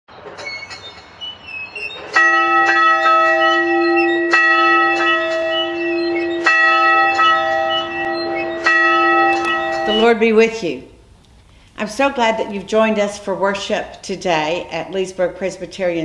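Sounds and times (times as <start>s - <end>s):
bell ringing: 2.2s - 10.2s.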